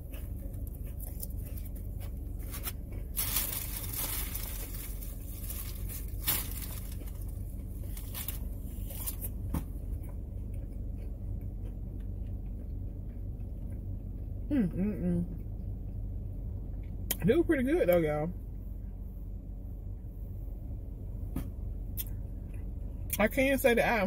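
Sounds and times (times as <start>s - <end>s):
steady low hum: 0.0s - 24.0s
plastic wrapper crinkling: 2.4s - 9.2s.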